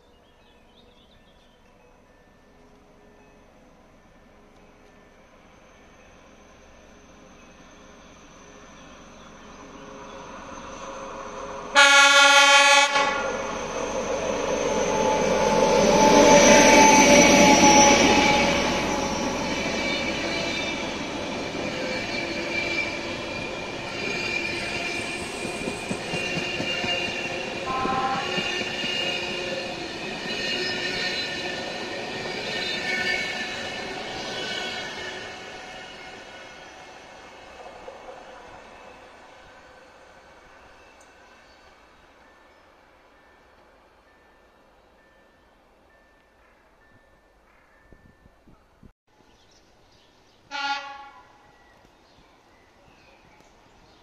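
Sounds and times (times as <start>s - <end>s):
train passing with rail noise: 0.0s - 54.0s
wheels squealing against rails: 4.6s - 42.6s
train horn blast: 11.7s - 13.5s, 26.6s - 29.4s, 50.5s - 51.6s.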